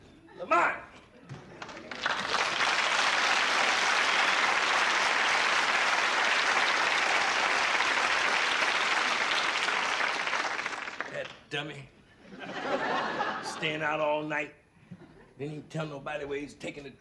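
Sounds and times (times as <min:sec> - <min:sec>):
audience applauding: 0:01.6 - 0:11.4.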